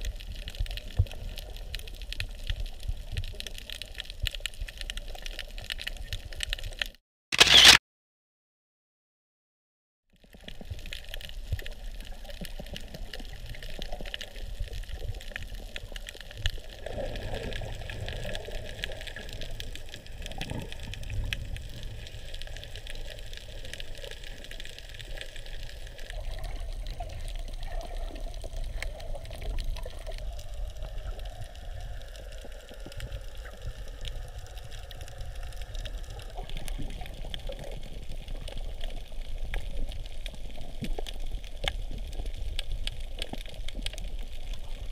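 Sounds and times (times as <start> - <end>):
fine clicks and crackles: 0.0 - 7.8, 10.2 - 44.9.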